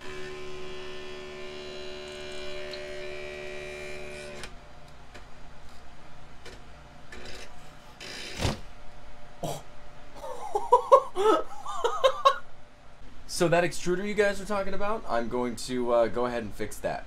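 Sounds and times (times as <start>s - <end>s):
printer electrical whine: 0.0s - 4.8s.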